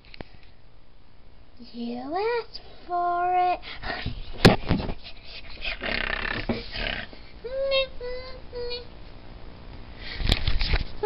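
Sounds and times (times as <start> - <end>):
camera rustling against dog fur: 4.0 - 5.6, 10.2 - 11.0.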